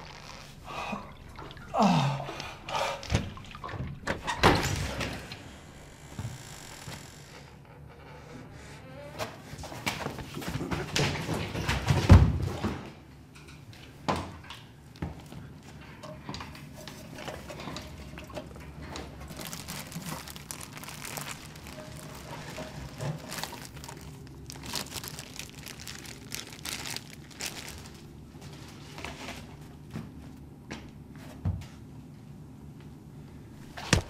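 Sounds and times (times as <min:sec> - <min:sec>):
low steady hum: 0:13.0 - 0:34.0
plastic bag crinkling: 0:19.3 - 0:28.2.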